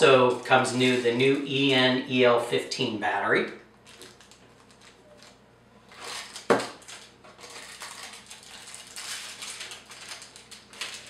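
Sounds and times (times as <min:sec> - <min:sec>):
plastic bag crinkling: 0:00.2 - 0:01.7, 0:03.8 - 0:11.0.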